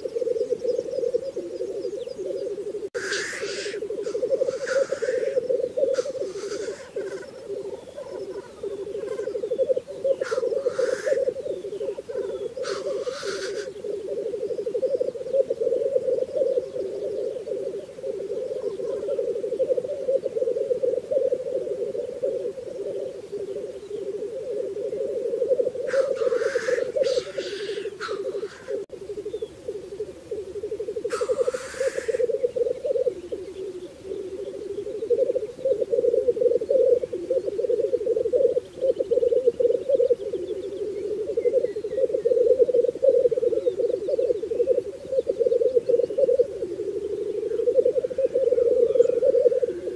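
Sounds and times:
grouse bubbling coo: 0:00.0 - 0:49.9
grouse hissing calls: 0:00.0 - 0:49.9.

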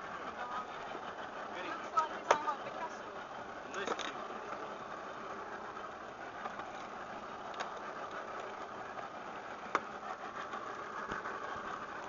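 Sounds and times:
boat engine running: 0:00.0 - 0:12.0.

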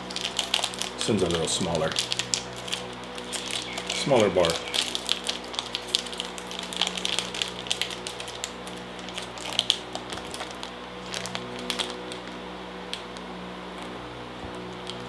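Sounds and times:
plastic wrapper crinkling: 0:00.0 - 0:15.0.

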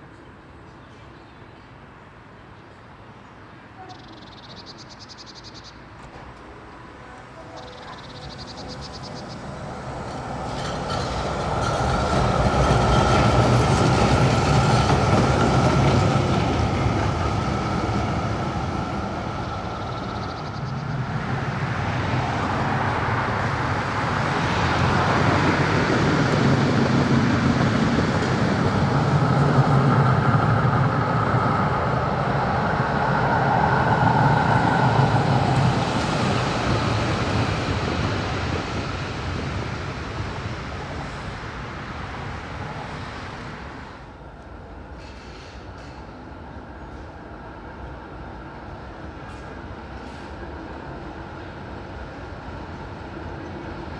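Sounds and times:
tram passing with whine: 0:00.0 - 0:53.9
car passing: 0:06.4 - 0:44.2.

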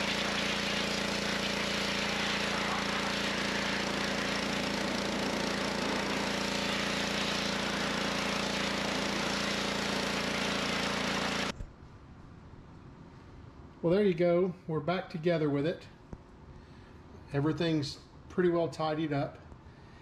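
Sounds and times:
water jet hissing: 0:00.0 - 0:11.5
pressure washer motor hum: 0:00.0 - 0:11.6.

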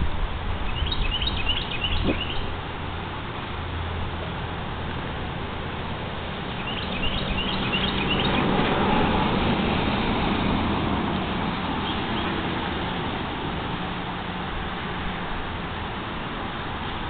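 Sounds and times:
small bird chirping: 0:00.6 - 0:02.5, 0:06.5 - 0:08.5
vehicle passing: 0:00.8 - 0:17.0.

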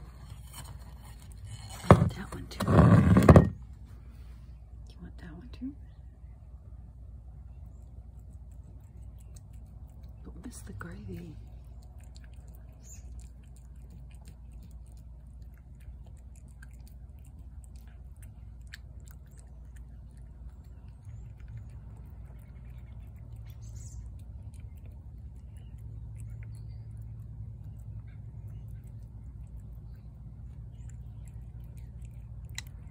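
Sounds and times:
low steady hum: 0:00.0 - 0:32.9
cat chewing wet food: 0:07.5 - 0:32.9.

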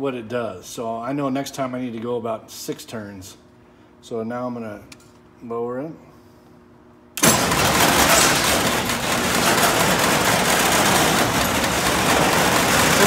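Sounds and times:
door operator motor rattling: 0:07.2 - 0:13.0.

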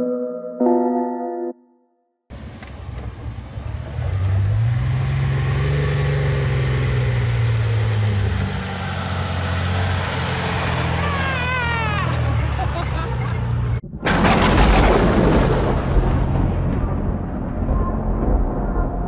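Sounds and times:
suv engine at low revs: 0:02.3 - 0:13.8.

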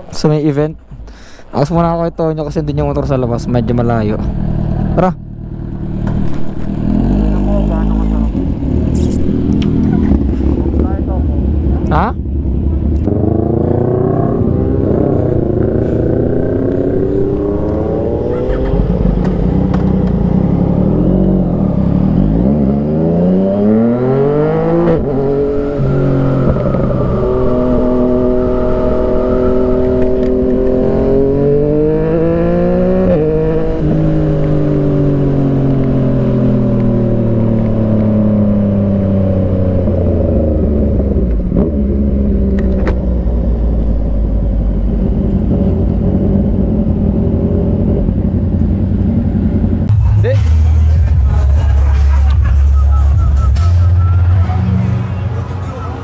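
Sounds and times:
motorcycle engine accelerating: 0:02.7 - 0:54.4.

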